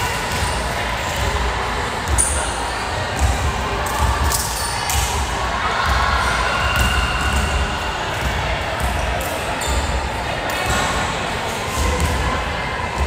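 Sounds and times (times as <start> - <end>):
volleyball bouncing on floor: 6.6 - 9.0.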